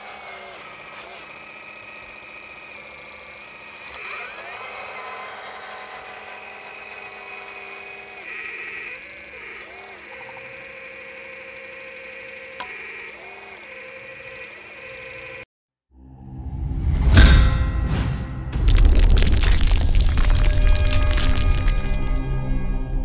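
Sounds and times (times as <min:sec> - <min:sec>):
hydraulic pump whining: 0:00.0 - 0:15.5.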